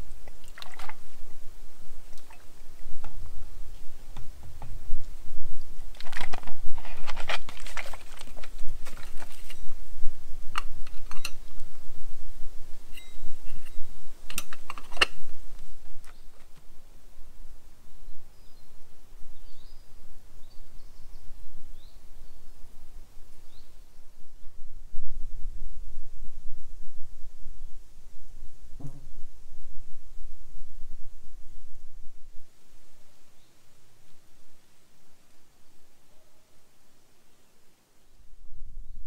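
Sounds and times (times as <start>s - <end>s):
plastic packaging crinkling: 5.9s - 9.6s
faint bird chirps: 12.9s - 14.0s, 17.8s - 24.5s, 33.1s - 34.8s.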